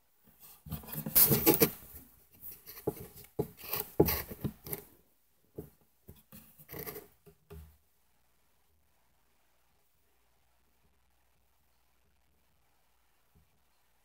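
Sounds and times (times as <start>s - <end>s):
scratching and rubbing: 0.4s - 4.9s, 5.6s - 7.2s.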